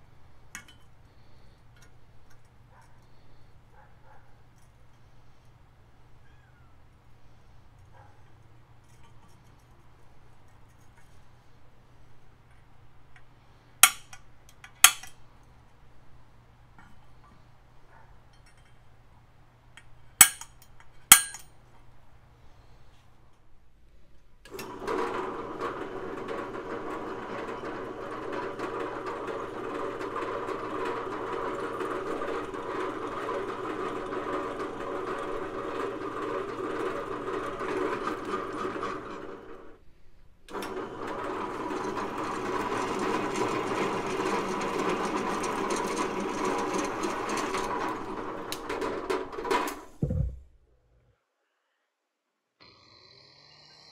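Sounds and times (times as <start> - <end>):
drill press boring through steel: 24.5 - 39.7, 40.5 - 49.4.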